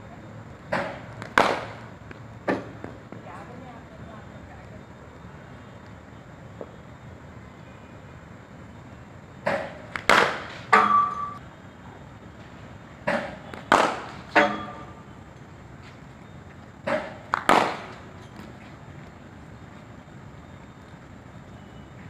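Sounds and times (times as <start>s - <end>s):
ball hitting concrete and bat: 0.7s - 3.0s, 9.4s - 11.4s, 13.0s - 14.9s, 16.8s - 18.0s.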